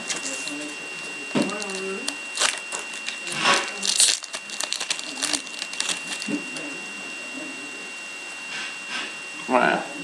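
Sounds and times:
foil wrapper crinkling and tearing: 0:00.0 - 0:00.8, 0:01.5 - 0:06.6.

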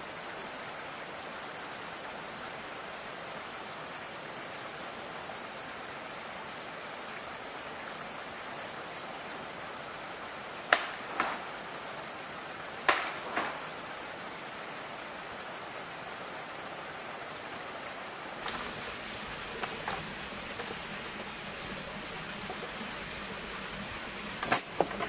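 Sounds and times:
outdoor background hiss: 0:00.0 - 0:25.0
sharp knocks: 0:10.7 - 0:11.5, 0:12.9 - 0:13.7.

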